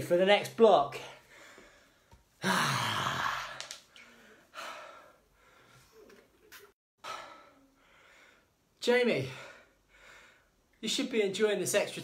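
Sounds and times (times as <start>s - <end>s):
man breathing heavily: 1.2s - 6.0s, 7.0s - 8.7s, 9.3s - 10.6s.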